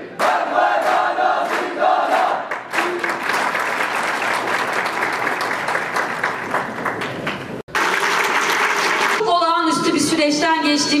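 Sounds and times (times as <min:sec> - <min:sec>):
large audience applauding: 0:01.5 - 0:09.2.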